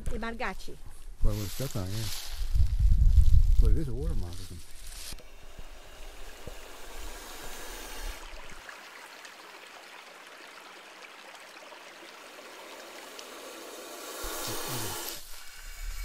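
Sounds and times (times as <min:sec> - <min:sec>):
rushing hiss: 0:04.8 - 0:08.6, 0:12.3 - 0:16.0.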